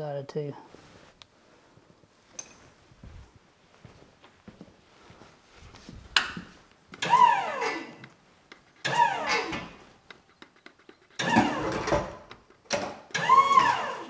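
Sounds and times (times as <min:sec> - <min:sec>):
electric motor whirring in bursts: 0:13.1 - 0:14.0.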